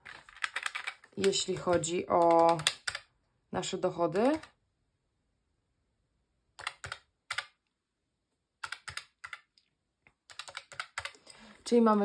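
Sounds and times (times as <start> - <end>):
calculator keys clicking: 0.1 - 3.0, 6.6 - 7.5, 8.6 - 9.5, 10.3 - 11.2.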